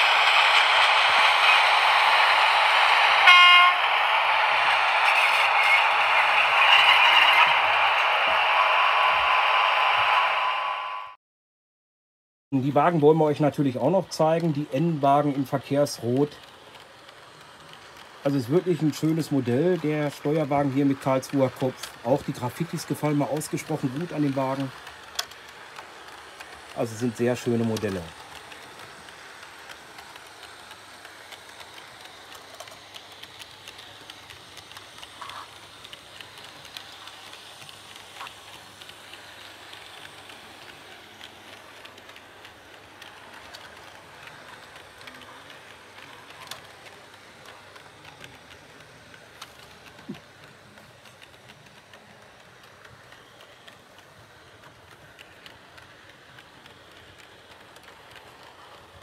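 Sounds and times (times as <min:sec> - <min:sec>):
wheels clicking on rails: 0:00.0 - 0:10.3, 0:12.6 - 0:59.0
model train running: 0:00.0 - 0:11.2, 0:12.6 - 0:59.0.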